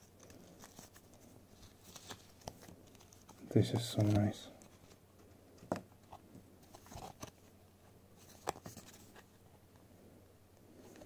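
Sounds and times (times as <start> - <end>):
paper card clicks and rustles: 0.0 - 5.3, 6.0 - 7.5, 8.2 - 9.3.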